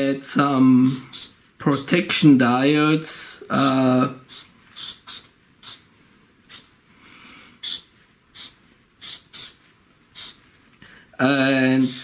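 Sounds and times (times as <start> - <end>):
marker scratching on paper: 1.1 - 1.9, 3.6 - 5.9, 6.5 - 6.7, 7.6 - 10.5.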